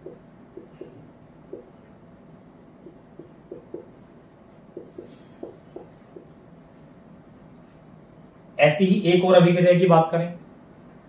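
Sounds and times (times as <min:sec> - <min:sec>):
marker squeaking on whiteboard: 0:00.0 - 0:06.6.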